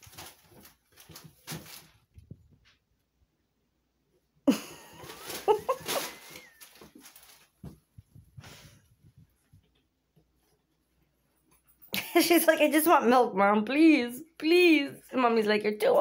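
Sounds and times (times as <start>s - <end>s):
cats tussling: 0.0s - 2.7s, 4.8s - 11.8s
paws scuffling on bathtub: 4.9s - 10.5s.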